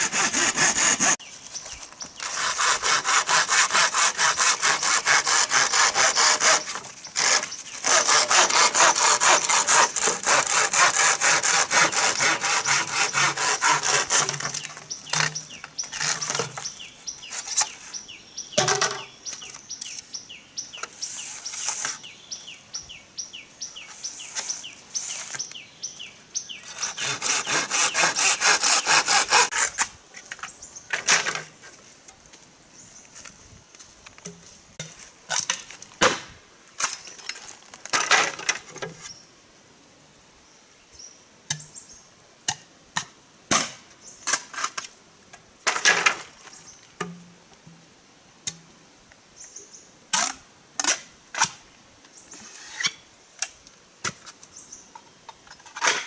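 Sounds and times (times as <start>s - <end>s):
saw cutting bamboo: 0.0s - 1.2s, 2.2s - 16.7s, 26.6s - 29.9s.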